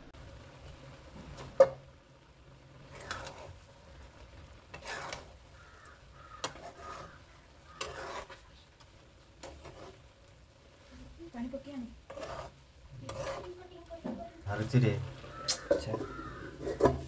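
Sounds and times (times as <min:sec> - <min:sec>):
spatula scraping metal wok: 0:02.8 - 0:03.7, 0:04.6 - 0:10.2, 0:11.0 - 0:17.0.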